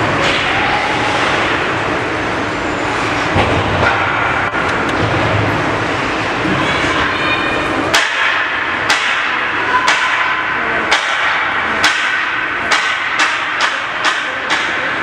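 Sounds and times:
ice rink ambience: 0.0 - 15.0
sharp claps or bangs: 7.9 - 14.9.

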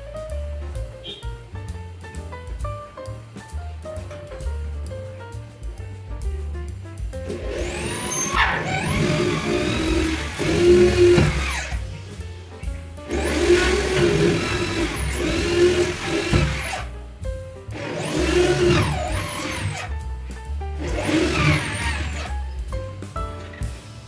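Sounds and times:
electric drill boring into wood: 7.4 - 11.8, 13.1 - 16.8, 17.8 - 19.9, 20.8 - 22.4.

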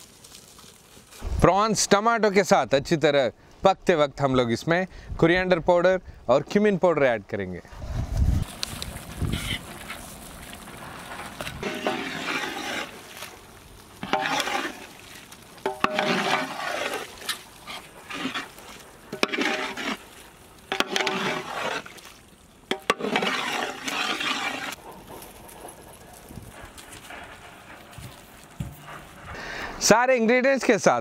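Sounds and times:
ladle scraping and sloshing in pot: 9.2 - 24.8.

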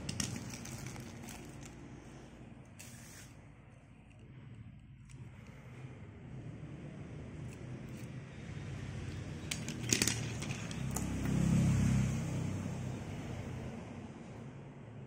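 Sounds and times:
toy car clicking on glass: 9.1 - 11.2.

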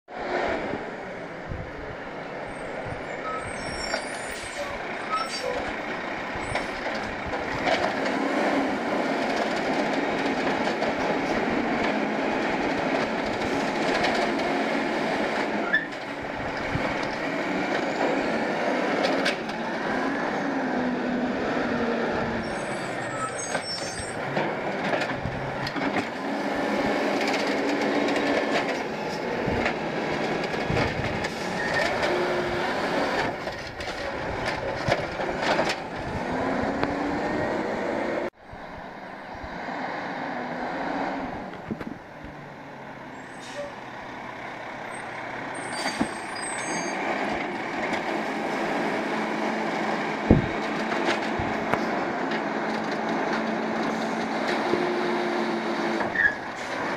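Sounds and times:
diesel truck engine revving: 0.1 - 56.9
hydraulic squeal: 2.5 - 5.7, 15.6 - 16.0, 22.4 - 24.3, 31.3 - 32.0, 43.2 - 43.8, 44.9 - 47.0, 56.1 - 56.7.

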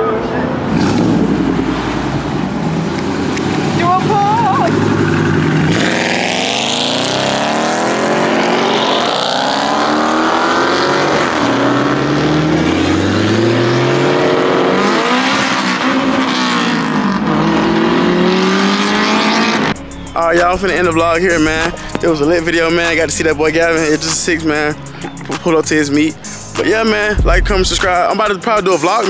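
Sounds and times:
car engine accelerating hard: 0.6 - 22.8.

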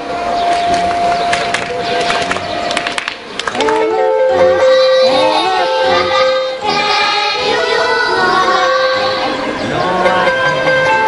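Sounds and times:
child singing: 4.3 - 9.6.

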